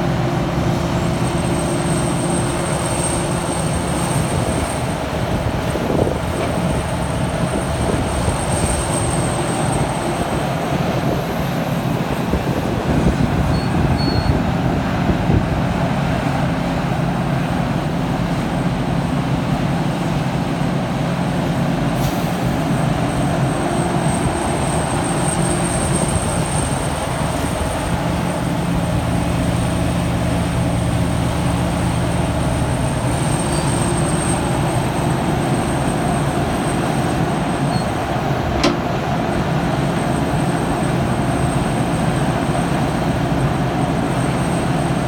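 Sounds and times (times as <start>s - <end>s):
excavator diesel engine: 0.0s - 45.0s
thin high whine: 30.6s - 38.0s.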